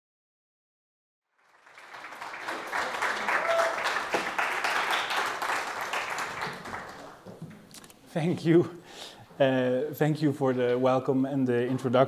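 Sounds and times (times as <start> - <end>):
audience applauding: 1.3 - 7.3.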